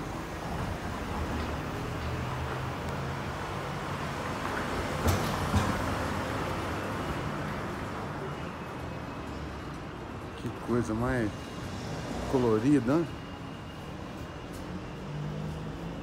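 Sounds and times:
street traffic: 0.0s - 16.0s.

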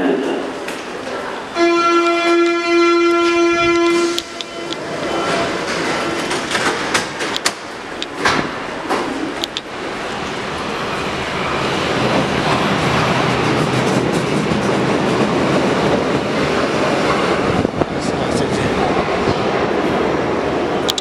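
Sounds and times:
underground train rumbling: 0.0s - 21.0s
train clatter: 3.7s - 9.6s, 11.8s - 19.4s.

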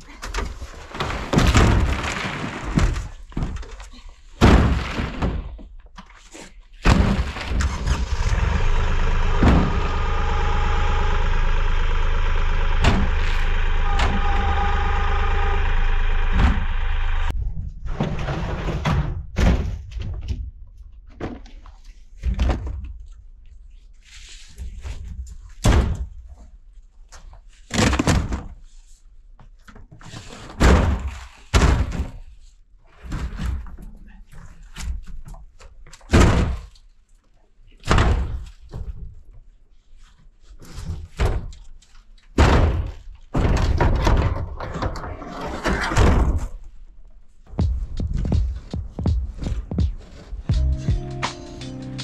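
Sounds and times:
hollow thunks and knocks: 0.9s - 3.8s, 42.4s - 45.0s.

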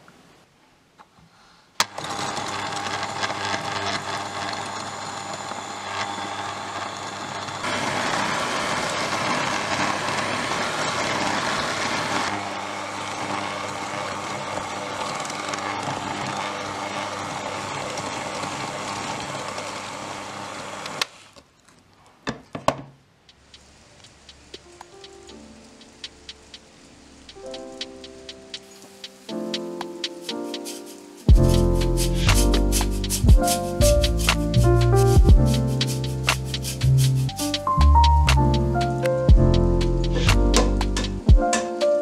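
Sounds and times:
electric hand mixer running: 1.8s - 21.1s.

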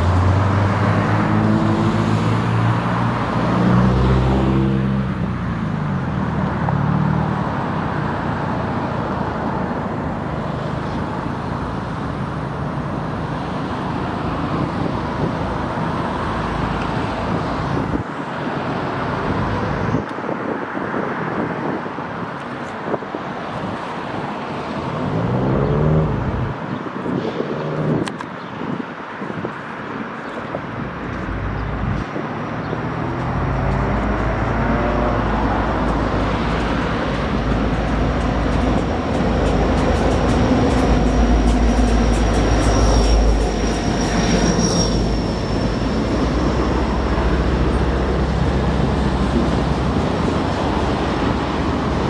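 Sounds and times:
diesel locomotive engine rumble: 30.8s - 52.0s.

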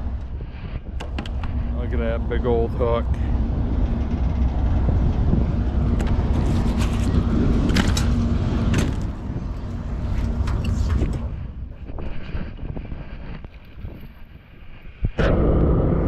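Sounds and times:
engine idling: 0.0s - 12.0s
wind buffeting microphone: 0.0s - 16.0s.

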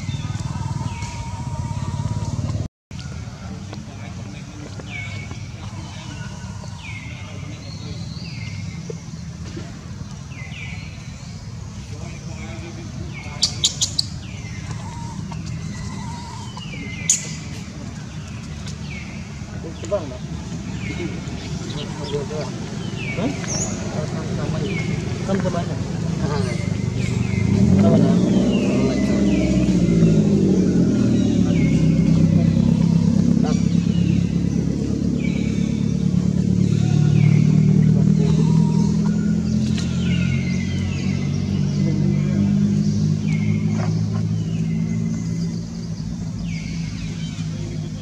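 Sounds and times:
faint high falling calls: 0.0s - 2.7s, 13.2s - 17.6s
low engine hum: 0.0s - 48.0s.

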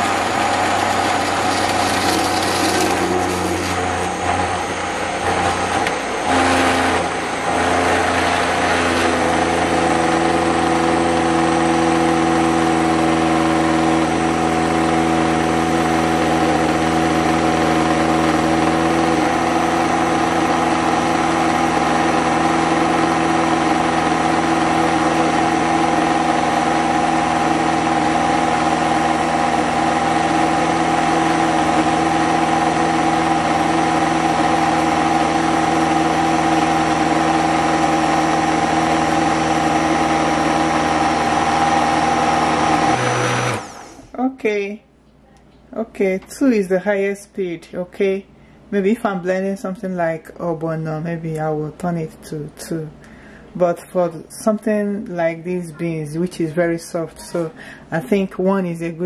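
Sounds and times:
blender motor humming: 0.0s - 44.1s.

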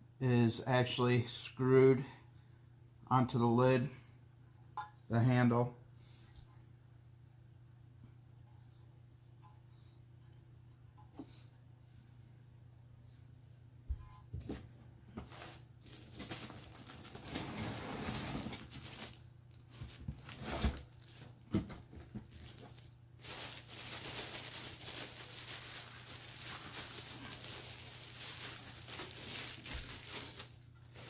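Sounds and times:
plastic bag crinkling: 15.8s - 31.0s.

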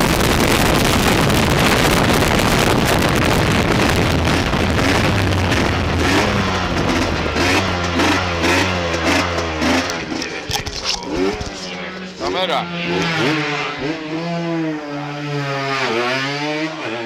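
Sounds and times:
wind rush on microphone: 0.0s - 8.4s
motorcycle engine at speed: 0.0s - 17.0s.

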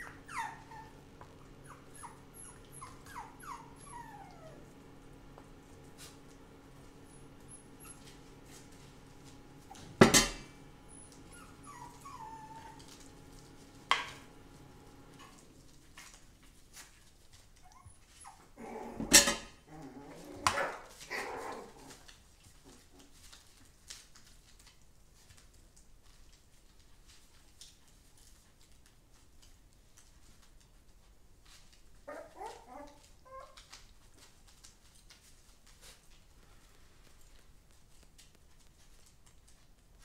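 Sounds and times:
metal spoon clanking on tray: 10.0s - 10.5s.

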